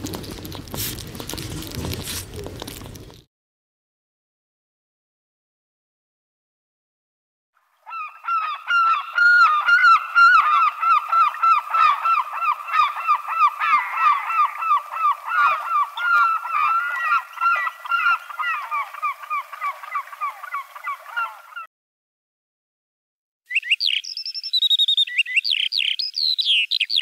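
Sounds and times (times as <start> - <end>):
gulls calling: 7.8 - 21.7.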